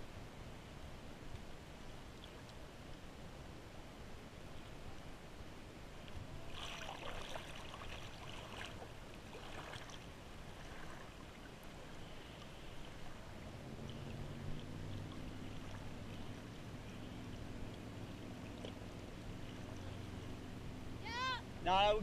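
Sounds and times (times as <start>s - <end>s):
small waves lapping: 5.9s - 22.0s
water splashing: 6.4s - 22.0s
boat engine idling: 11.8s - 22.0s.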